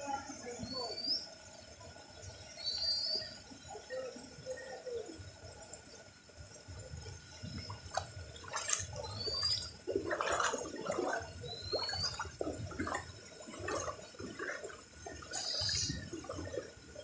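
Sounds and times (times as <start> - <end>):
floodwater flowing: 3.3 - 17.0
rain falling on water: 3.6 - 17.0
water splashing: 7.4 - 17.0.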